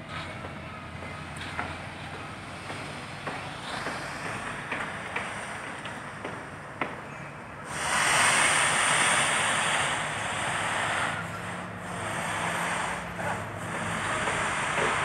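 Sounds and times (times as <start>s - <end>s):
crane diesel engine under load: 0.0s - 15.0s
loud rushing hiss: 7.6s - 15.0s.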